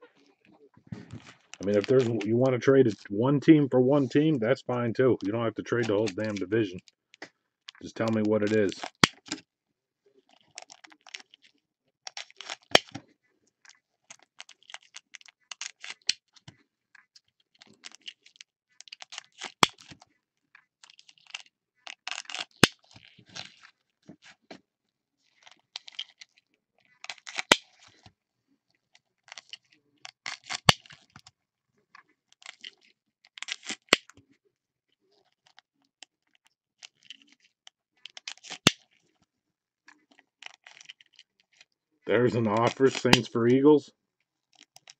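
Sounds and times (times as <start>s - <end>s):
foil wrappers crinkling and tearing: 17.6s - 20.0s, 27.0s - 28.0s.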